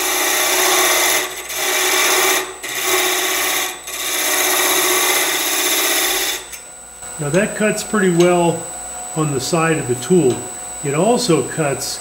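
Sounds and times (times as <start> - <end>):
scraper cutting wood on a lathe: 0.0 - 6.5.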